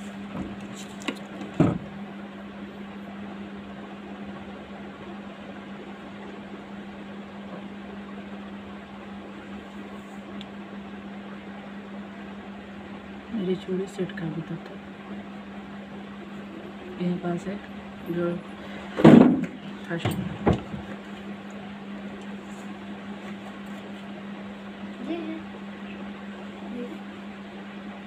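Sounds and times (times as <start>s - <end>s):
low hum with hiss: 0.0s - 28.0s
loud knock: 19.0s - 19.6s.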